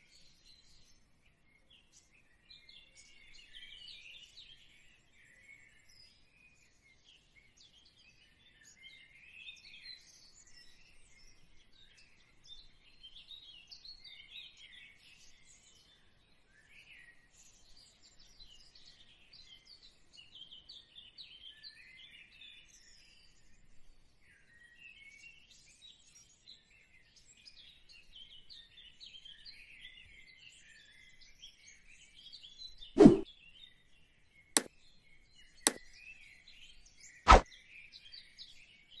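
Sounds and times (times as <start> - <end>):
loud pop sound effect: 33.0 - 33.2.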